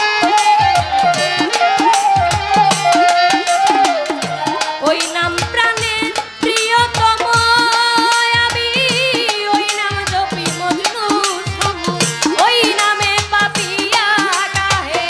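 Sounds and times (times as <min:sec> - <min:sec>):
bowed violin melody: 0:00.0 - 0:05.1.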